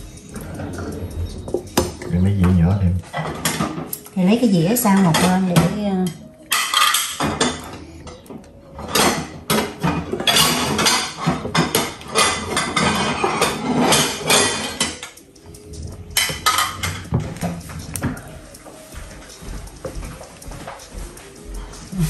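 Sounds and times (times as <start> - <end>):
cutlery knocking on dishes: 4.9 - 7.8, 8.8 - 15.3, 16.1 - 18.3
ceramic dishes clattering: 4.9 - 15.3, 16.1 - 18.3.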